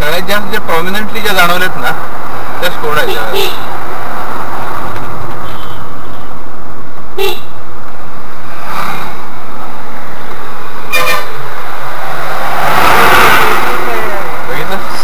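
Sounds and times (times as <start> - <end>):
car road and engine noise: 0.0 - 15.0
car horn toot: 5.4 - 6.3, 7.2 - 7.6, 10.9 - 11.4.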